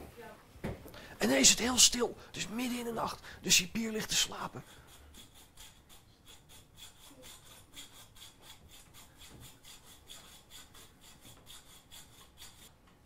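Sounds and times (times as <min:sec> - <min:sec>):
hacksaw sawing metal: 0:03.8 - 0:12.8.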